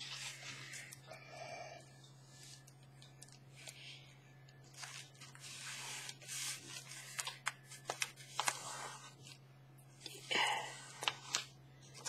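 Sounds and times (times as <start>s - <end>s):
paper rustling and rubbing: 0.0s - 1.0s, 4.6s - 9.4s.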